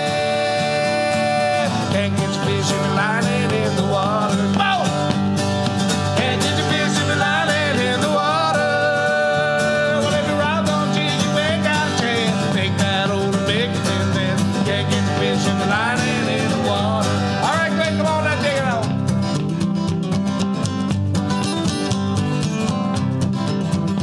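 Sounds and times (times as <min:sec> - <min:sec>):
people singing: 0:00.0 - 0:05.3, 0:05.9 - 0:18.8
acoustic guitars strumming: 0:00.0 - 0:24.0.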